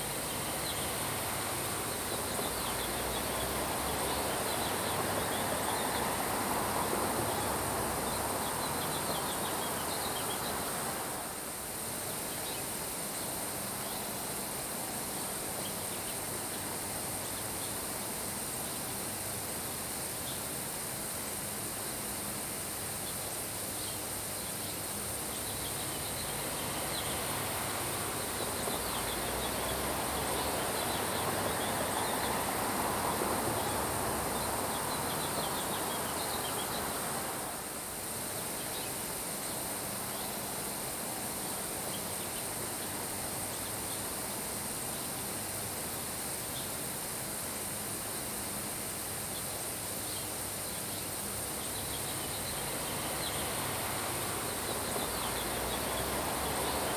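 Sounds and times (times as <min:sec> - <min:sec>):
rain falling on grass: 0:22.5 - 0:56.9.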